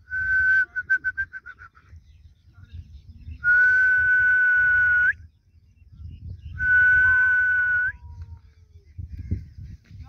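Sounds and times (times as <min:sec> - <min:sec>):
person whistling: 0:00.0 - 0:01.8, 0:03.4 - 0:05.2.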